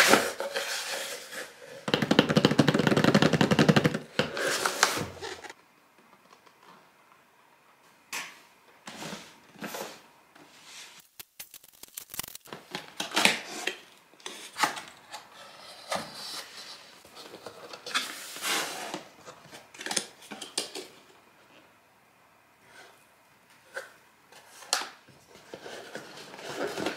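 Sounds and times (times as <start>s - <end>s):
sticker being peeled: 11.0s - 12.5s
cardboard rustling and scraping: 25.3s - 26.9s.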